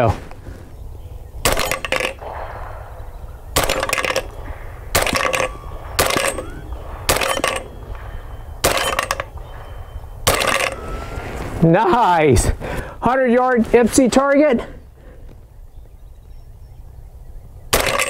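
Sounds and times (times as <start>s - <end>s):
suppressed gunshots: 1.4s - 11.0s, 17.7s - 18.0s
metallic ring of steel targets: 1.5s - 11.0s, 17.8s - 18.0s.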